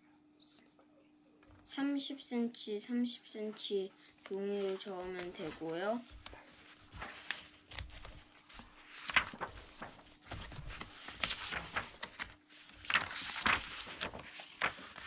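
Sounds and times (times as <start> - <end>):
book pages turning: 4.2 - 15.0.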